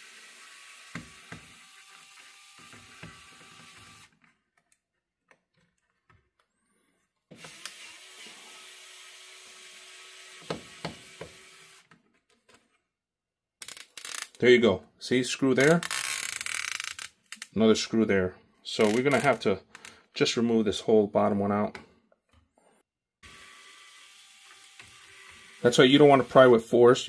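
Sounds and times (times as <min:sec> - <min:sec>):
electric screwdriver motor whine: 0:00.0 - 0:04.1, 0:07.4 - 0:11.9, 0:23.2 - 0:26.4.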